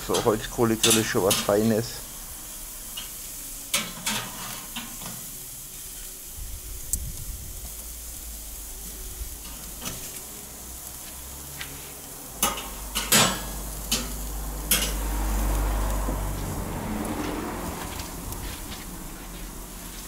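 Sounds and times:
steaks sizzling on a grill: 0:00.0 - 0:20.0
tongs clicking on steel grate: 0:12.4 - 0:15.6.

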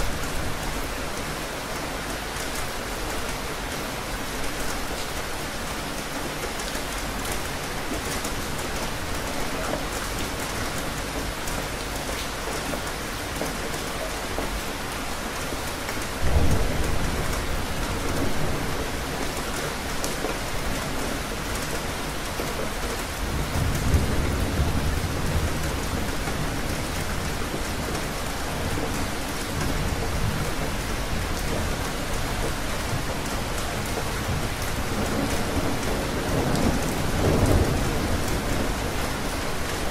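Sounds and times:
steady rain falling: 0:00.0 - 0:39.9
thunder rumbling: 0:34.2 - 0:39.9.

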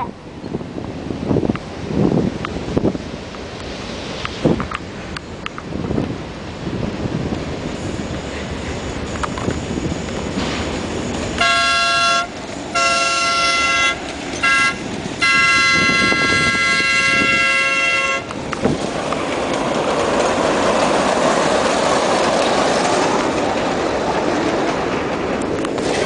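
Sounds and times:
train rumbling on rails: 0:00.0 - 0:26.0
train horn chord: 0:11.4 - 0:18.3.

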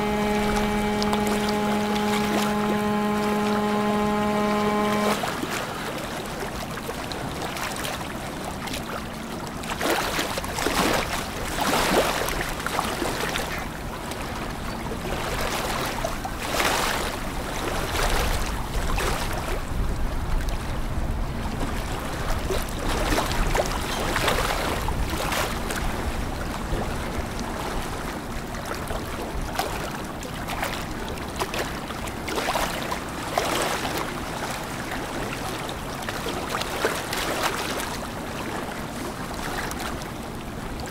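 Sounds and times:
boat engines humming: 0:00.0 - 0:09.7
water noise: 0:00.0 - 0:40.9
wind: 0:00.0 - 0:40.9.

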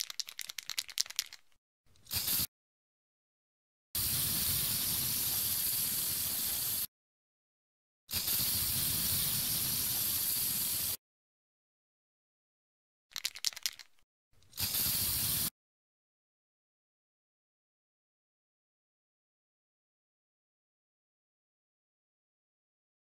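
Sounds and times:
spray paint can hissing: 0:00.0 - 0:01.4, 0:02.0 - 0:02.5, 0:04.0 - 0:06.9, 0:08.1 - 0:11.0, 0:13.2 - 0:13.9, 0:14.5 - 0:15.5
spray can mixing ball rattling: 0:00.0 - 0:02.5, 0:04.0 - 0:06.9, 0:08.1 - 0:11.0, 0:13.1 - 0:15.5.

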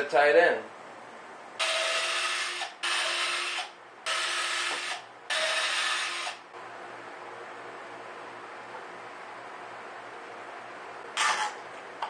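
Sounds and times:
power drill boring through plywood: 0:01.6 - 0:06.4.

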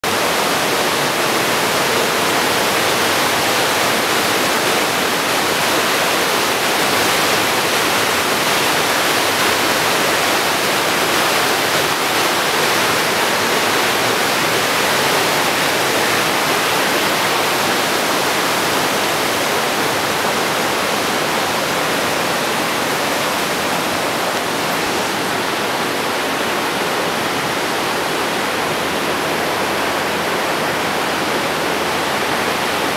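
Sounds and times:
water rushing through gorge: 0:00.0 - 0:32.9.

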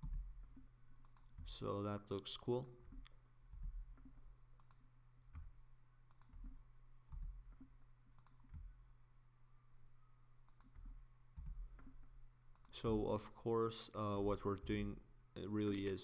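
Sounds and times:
faint computer mouse clicks: 0:00.0 - 0:01.5, 0:04.0 - 0:05.5, 0:06.1 - 0:08.7, 0:10.4 - 0:12.8
low steady hum: 0:00.0 - 0:16.0.

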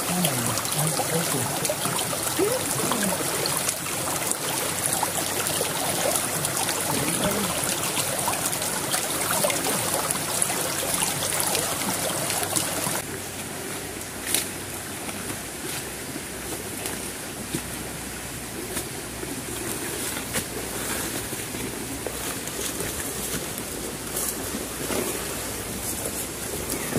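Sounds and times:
footsteps wading through water: 0:00.0 - 0:13.0
stream water rushing: 0:00.0 - 0:26.9.

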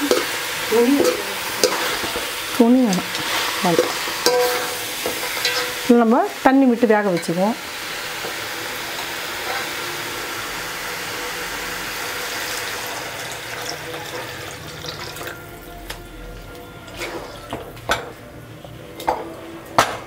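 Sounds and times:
water hissing in a hot pot: 0:00.0 - 0:15.8
metal ladle clinking against pot: 0:03.1 - 0:05.8.

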